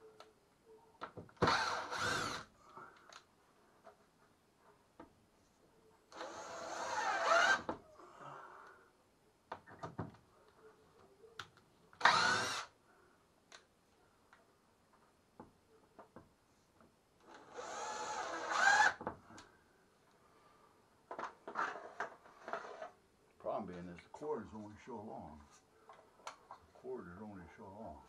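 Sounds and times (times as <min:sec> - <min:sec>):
power drill motor: 0:01.4 - 0:02.5, 0:06.1 - 0:07.8, 0:12.0 - 0:12.7, 0:17.2 - 0:19.0.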